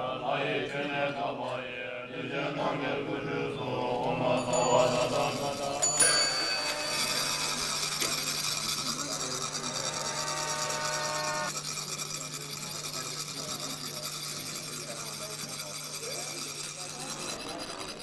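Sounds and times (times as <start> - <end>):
metallic rasping of rod on ridges: 4.3 - 18.0
faint held tone: 4.4 - 11.5.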